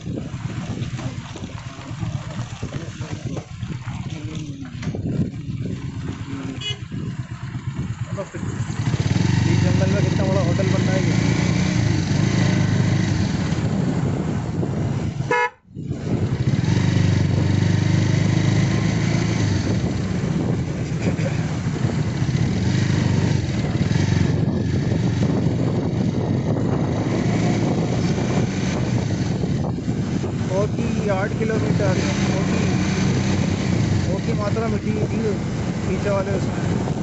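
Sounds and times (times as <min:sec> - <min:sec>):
motorcycle engine running: 0:00.0 - 0:37.0
road and wind noise: 0:00.0 - 0:37.0
short horn toot: 0:15.3 - 0:15.6.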